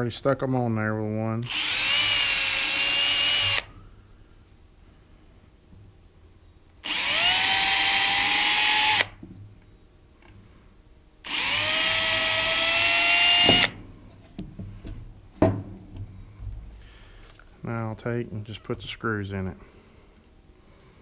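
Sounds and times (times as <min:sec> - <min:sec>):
cordless drill whining: 0:01.4 - 0:03.8, 0:06.8 - 0:09.2, 0:11.2 - 0:13.8.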